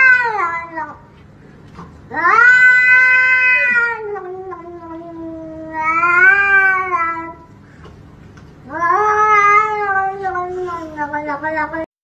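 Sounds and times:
cat yowling: 0:00.0 - 0:01.0, 0:02.1 - 0:07.4, 0:08.7 - 0:11.9.

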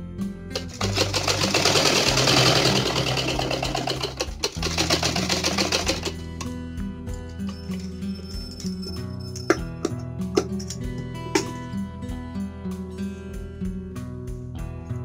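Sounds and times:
background music: 0:00.0 - 0:15.0
sewing machine clatter: 0:00.6 - 0:06.2.

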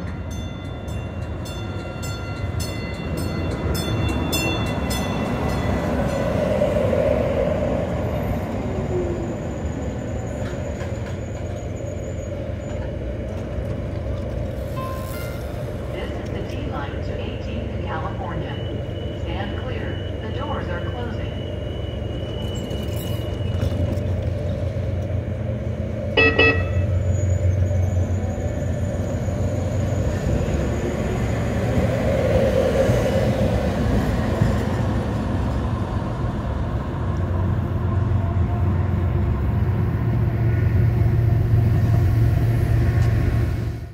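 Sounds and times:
light rail train rumbling: 0:00.0 - 0:43.9
train horn toot: 0:26.1 - 0:27.1.

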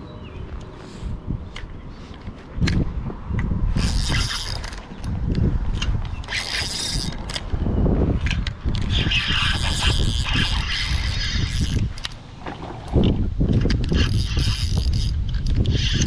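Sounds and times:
low rumbling wind: 0:00.0 - 0:16.0
fishing reel whirring: 0:03.7 - 0:05.2, 0:05.8 - 0:07.5, 0:08.2 - 0:12.2, 0:13.6 - 0:16.0.

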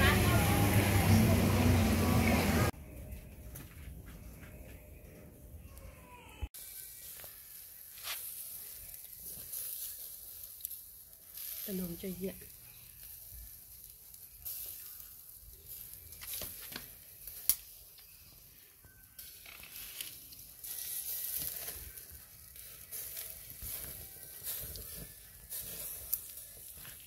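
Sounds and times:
squid sizzling on a grill: 0:06.6 - 0:27.0.

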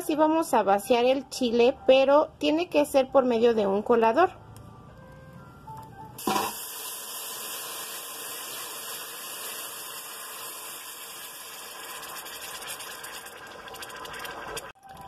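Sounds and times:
sauce sizzling in hot oil: 0:06.2 - 0:14.7.

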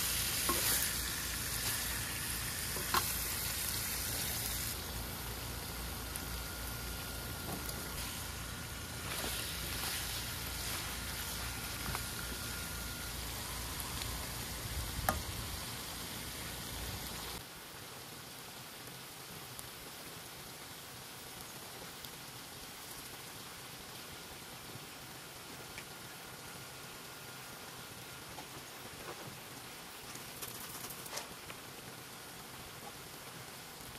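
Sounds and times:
food sizzling in a pan: 0:00.0 - 0:17.4.

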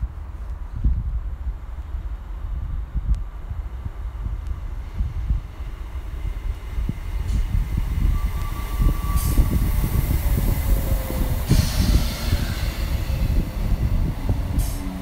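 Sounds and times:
train wheels rumbling on rails: 0:00.0 - 0:15.0
burst of hiss: 0:11.2 - 0:13.3.

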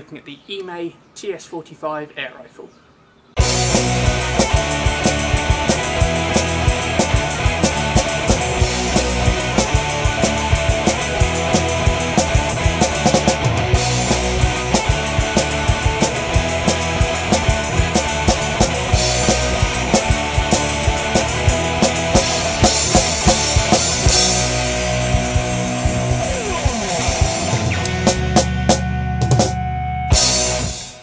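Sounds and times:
rock music with fast drums: 0:03.4 - 0:31.0.

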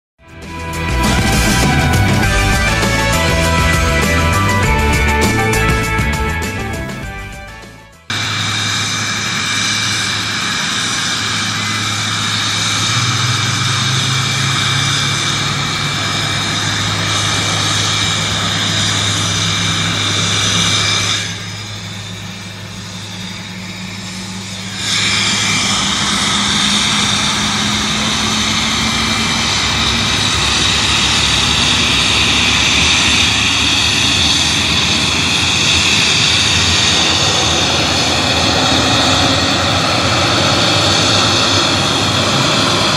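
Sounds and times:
jet engines whining: 0:00.3 - 0:42.9
engine spooling up: 0:00.4 - 0:42.9.

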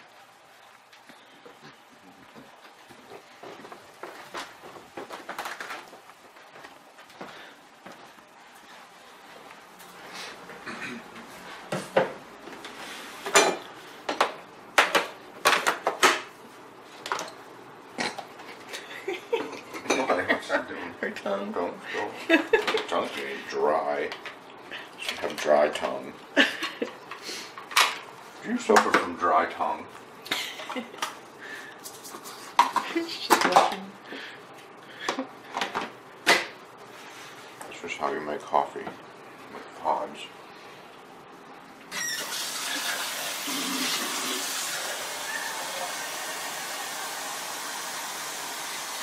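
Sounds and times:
dishes knocking and clinking: 0:13.3 - 0:16.3.

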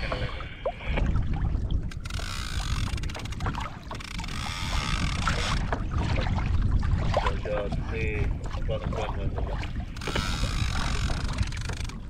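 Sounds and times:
small knocks and splashes: 0:00.0 - 0:12.0
water sloshing against kayak: 0:00.0 - 0:12.0
wind rumbling on microphone: 0:00.0 - 0:12.0.

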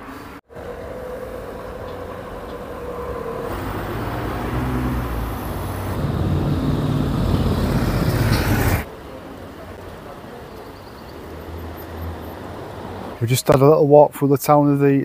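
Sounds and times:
hum of passing vehicles: 0:00.0 - 0:13.5
vehicle engine: 0:00.5 - 0:13.2.

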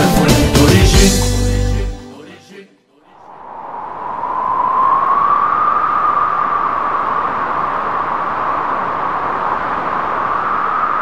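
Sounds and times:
steady rushing whistle-like noise: 0:03.2 - 0:11.0.

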